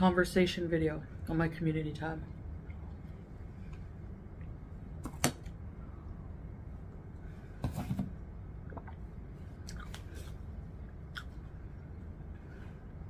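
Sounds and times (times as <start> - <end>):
chewing: 9.6 - 10.4.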